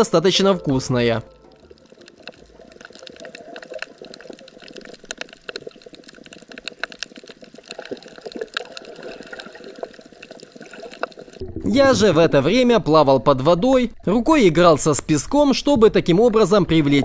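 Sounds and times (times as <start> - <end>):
underwater water movement: 0.0 - 17.0
crackle of small clicks: 1.5 - 11.4.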